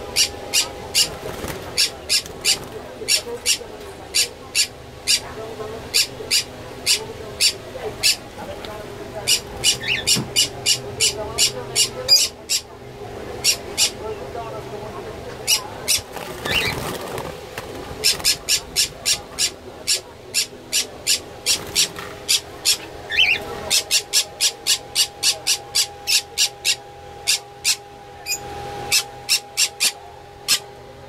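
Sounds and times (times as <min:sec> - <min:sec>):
birds chirping: 0:00.0 - 0:30.8
wings fluttering: 0:00.5 - 0:03.6, 0:15.4 - 0:19.6, 0:21.4 - 0:24.2.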